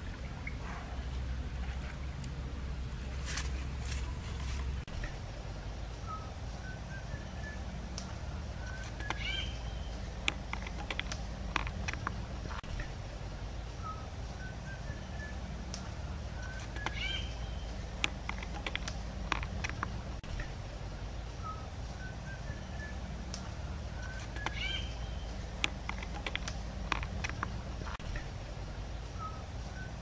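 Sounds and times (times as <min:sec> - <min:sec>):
birds chirping: 0:00.0 - 0:05.1, 0:05.8 - 0:30.0
steady low rumble: 0:00.0 - 0:30.0
sharp clicks: 0:10.2 - 0:12.6, 0:18.0 - 0:20.0, 0:25.6 - 0:28.0.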